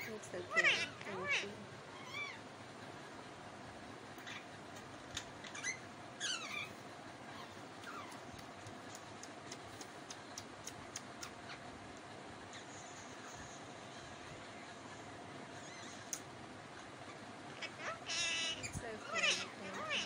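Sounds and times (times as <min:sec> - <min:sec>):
parakeet calls: 0:00.0 - 0:02.5, 0:04.2 - 0:09.0, 0:12.5 - 0:20.0.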